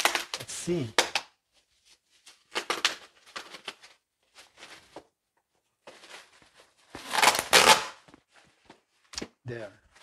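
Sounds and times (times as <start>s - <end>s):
bubble wrap rustling and crinkling: 1.6s - 5.2s, 5.8s - 8.4s.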